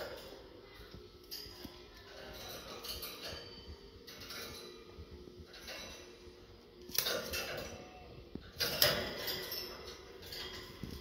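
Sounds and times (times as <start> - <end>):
wire birdcage rattling: 0.0 - 11.0
sharp metallic clatters: 6.9 - 11.0.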